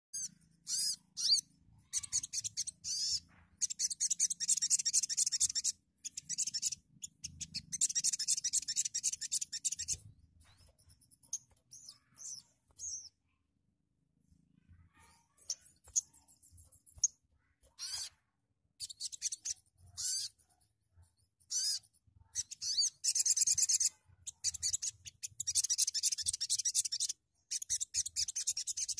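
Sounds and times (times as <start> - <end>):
sharp bird chirps: 0.1 - 13.4, 14.9 - 18.2, 18.8 - 20.7, 21.4 - 28.9
bird singing high trills: 0.2 - 10.1, 22.4 - 28.9.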